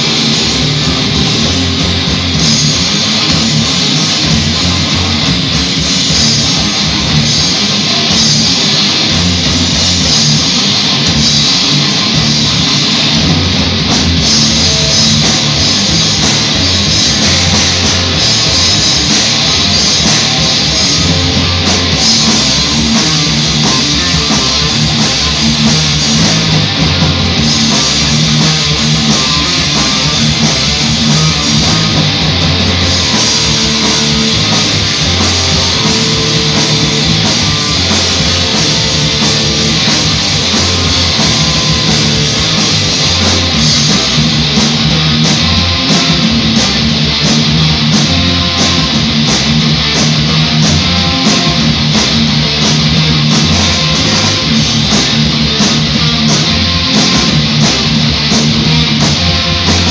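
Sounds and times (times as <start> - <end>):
live rock band playing: 0.0 - 59.9.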